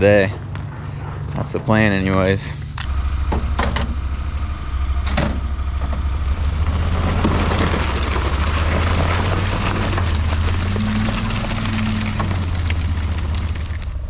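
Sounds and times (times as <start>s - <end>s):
utility vehicle engine running: 0.0s - 14.0s
tracks churning snow: 5.7s - 14.0s.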